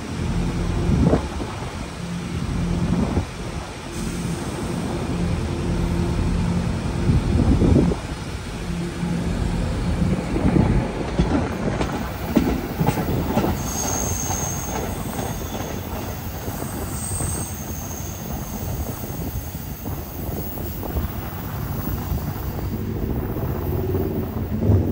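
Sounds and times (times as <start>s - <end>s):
subway train running: 0.0s - 24.9s
high wheel squeal: 13.6s - 22.8s.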